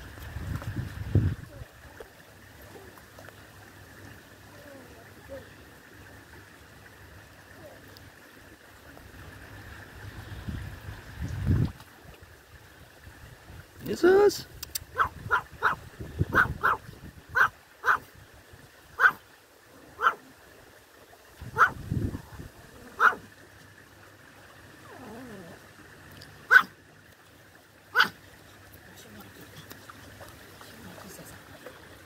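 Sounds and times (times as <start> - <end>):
small dog yapping: 14.9 - 18.1, 19.0 - 19.2, 20.0 - 20.2, 21.6 - 21.8, 22.9 - 23.3, 26.5 - 26.7, 27.9 - 28.2.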